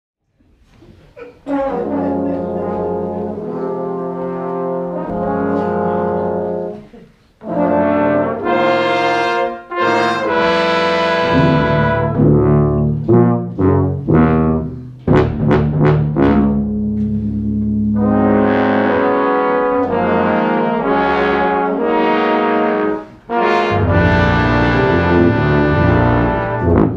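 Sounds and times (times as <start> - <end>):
brass and saxophone ensemble: 1.2 - 26.9.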